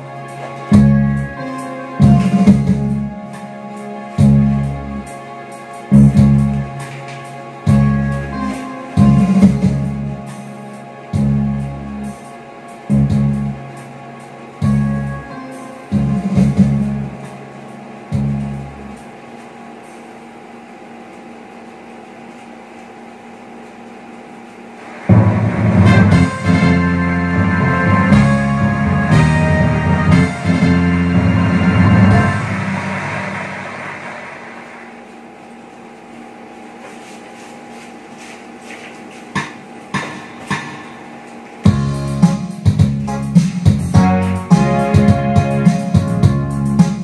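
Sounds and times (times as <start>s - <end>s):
sound system hiss and hum: 0.0s - 47.0s.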